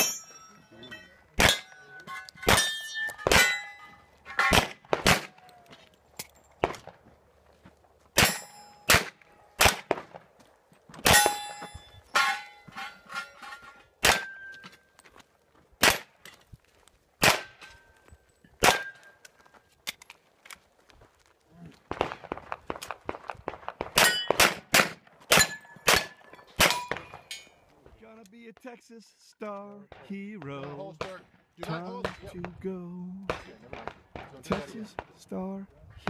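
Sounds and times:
steel plate ringing clang: 0:00.0 - 0:04.7, 0:08.2 - 0:09.0, 0:11.1 - 0:14.7, 0:24.0 - 0:24.4
pistol shots: 0:01.4 - 0:01.8, 0:02.4 - 0:03.6, 0:04.4 - 0:05.4, 0:08.2 - 0:10.2, 0:14.0 - 0:14.4, 0:17.2 - 0:17.6, 0:18.6 - 0:19.0, 0:21.9 - 0:27.3, 0:33.2 - 0:35.1.

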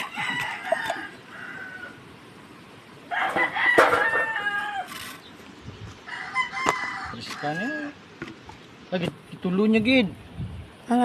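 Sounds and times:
rooster crowing: 0:00.0 - 0:02.0, 0:03.1 - 0:05.0, 0:06.0 - 0:08.0.

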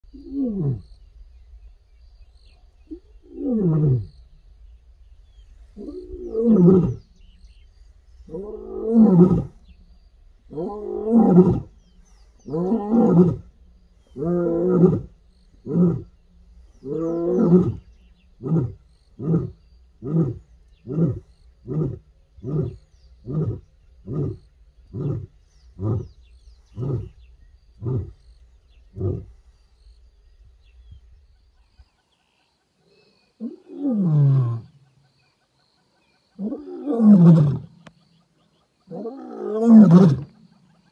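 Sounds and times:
lioness moaning roars: 0:05.8 - 0:07.4, 0:08.2 - 0:09.8, 0:10.4 - 0:28.3, 0:28.9 - 0:29.4.

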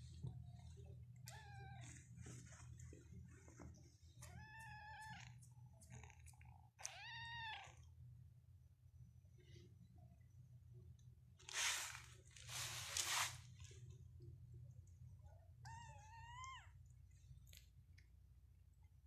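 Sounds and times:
kitten meowing: 0:06.8 - 0:07.8, 0:15.6 - 0:16.8.

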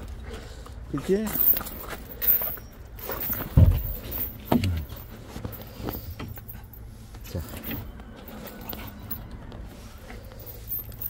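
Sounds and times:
handling bumps and clicks: 0:01.0 - 0:06.8
heavy low thump: 0:03.5 - 0:05.0.

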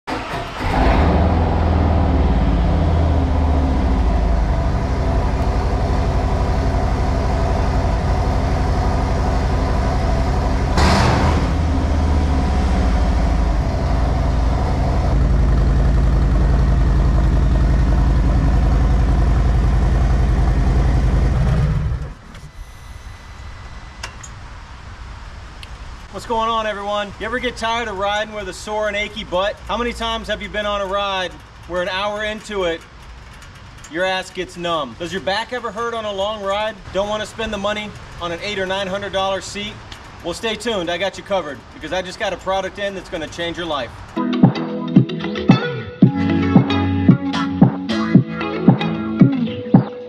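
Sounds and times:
motorcycle engine idling: 0:11.5 - 0:22.0.

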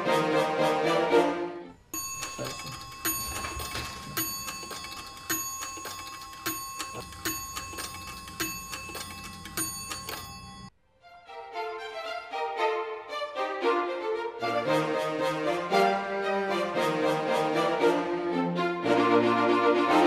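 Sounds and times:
clock ticking: 0:02.0 - 0:10.7.

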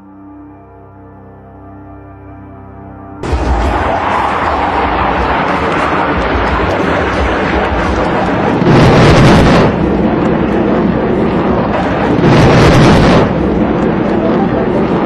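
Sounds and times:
explosions rumbling: 0:03.2 - 0:15.0.

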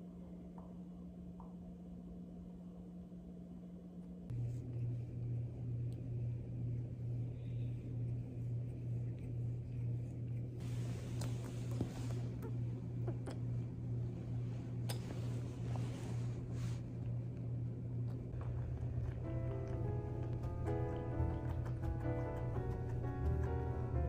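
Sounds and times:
faint steady hum: 0:00.0 - 0:24.0
bedding rustling: 0:14.4 - 0:16.9.

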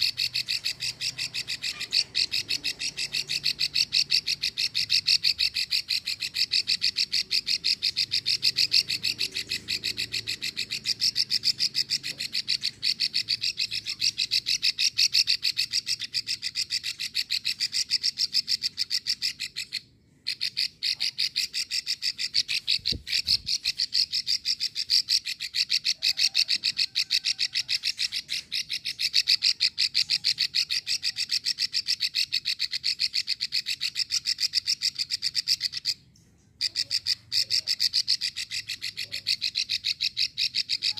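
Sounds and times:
bird dry clicking call: 0:00.0 - 0:19.7.

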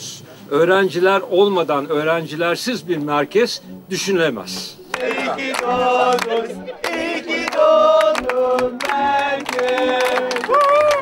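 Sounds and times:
group of voices singing: 0:04.9 - 0:11.0.

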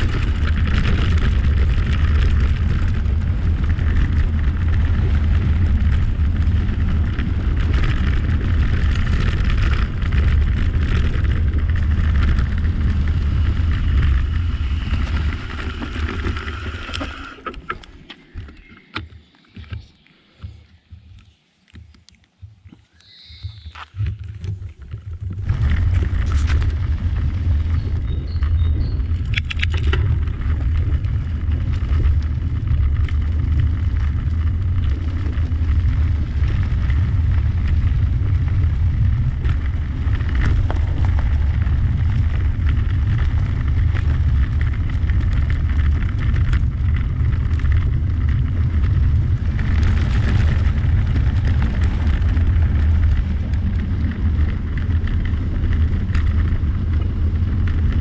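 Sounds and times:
wind buffeting microphone: 0:00.0 - 0:17.6, 0:22.4 - 0:58.0.

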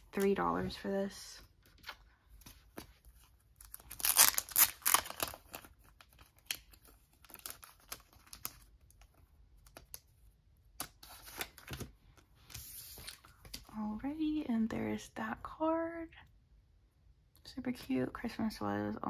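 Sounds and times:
plastic sleeve crinkling: 0:01.7 - 0:09.2.

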